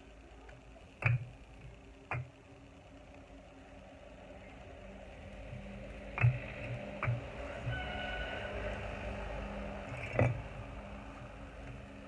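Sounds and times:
steady low motor hum: 0.0 - 12.0
bricks knocking together: 10.0 - 10.4.

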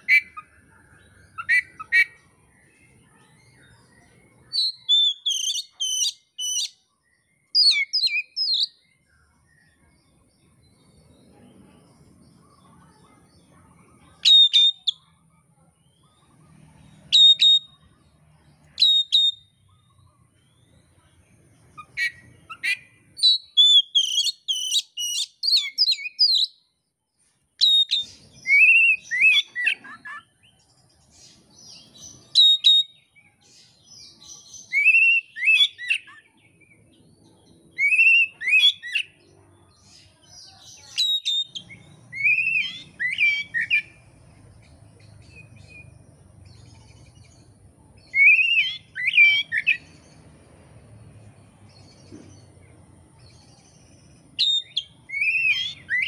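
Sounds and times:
bird singing whistled phrases: 1.2 - 2.2, 3.7 - 6.8, 7.4 - 8.8, 14.2 - 15.1, 17.1 - 17.8, 18.8 - 19.8, 21.8 - 26.7, 27.6 - 30.3, 32.2 - 33.1, 34.5 - 36.3, 37.7 - 39.2, 40.8 - 44.0, 48.0 - 50.0, 54.4 - 56.0.

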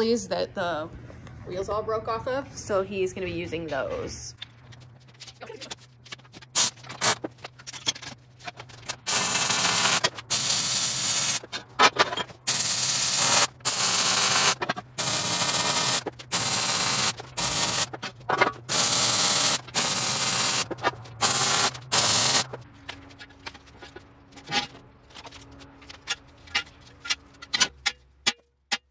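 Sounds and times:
welding arc crackling hiss: 9.1 - 11.4, 12.5 - 17.9.

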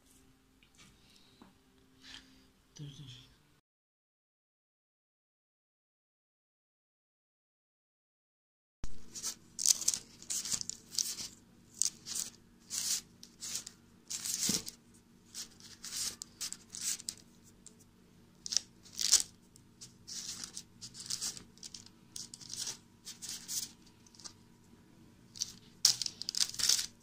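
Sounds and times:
baking paper crinkling: 8.9 - 24.4, 25.3 - 27.0.

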